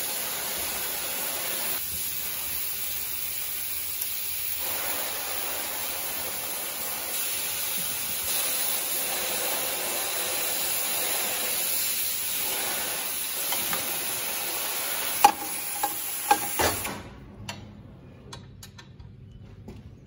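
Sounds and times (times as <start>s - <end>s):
steady hiss: 0.0s - 17.0s
clicking and tapping of parts: 18.3s - 19.8s.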